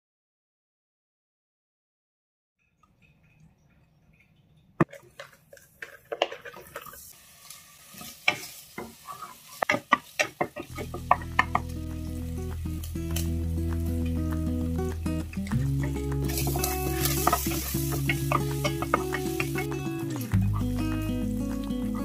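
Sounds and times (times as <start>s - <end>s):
meat sizzling in oil: 6.8s - 14.3s, 15.9s - 22.0s
background music with held notes: 10.7s - 22.0s.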